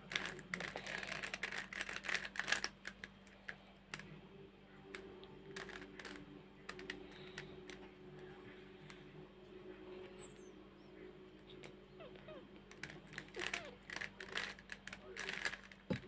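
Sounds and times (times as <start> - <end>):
plastic puzzle cube clicking: 0.0 - 4.0, 4.9 - 7.8, 12.7 - 16.0.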